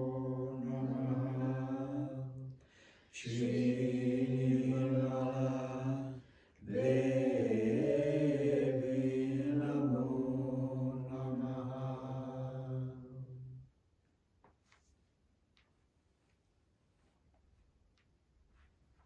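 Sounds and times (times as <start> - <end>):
mantra chanted in low notes: 0.0 - 13.7.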